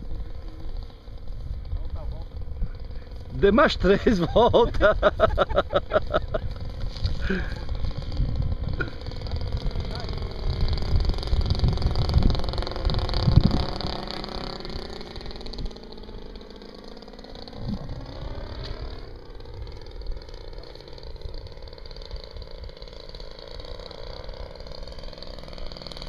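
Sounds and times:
model plane engine flying overhead: 0.0 - 26.0
wind rumble on microphone: 1.3 - 3.3, 4.3 - 14.1, 17.6 - 18.8.

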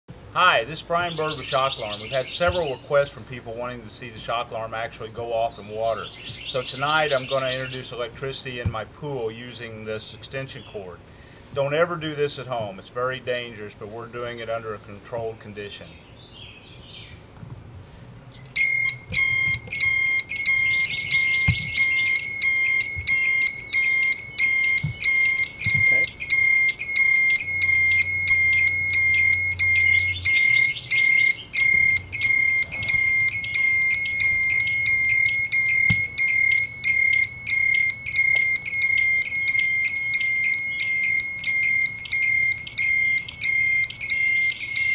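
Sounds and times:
high-pitched pulsing alarm beep: 0.5 - 16.0, 18.0 - 44.9.

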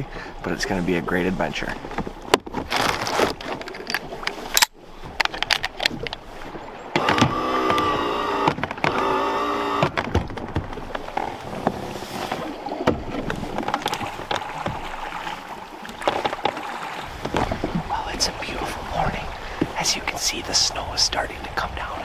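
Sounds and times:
oars knocking in oarlocks: 1.8 - 6.3, 7.0 - 18.0
drawn-out oar squeak: 1.9 - 17.8.

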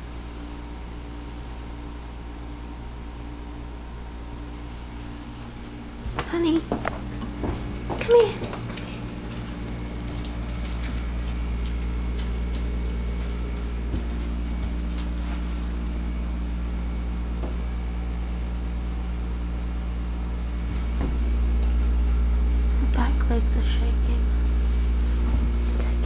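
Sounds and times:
household appliance humming: 0.0 - 26.0.

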